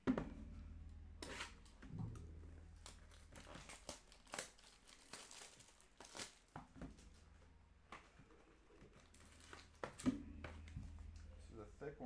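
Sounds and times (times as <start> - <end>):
plastic wrap crinkling and tearing: 2.7 - 7.3, 8.8 - 10.0.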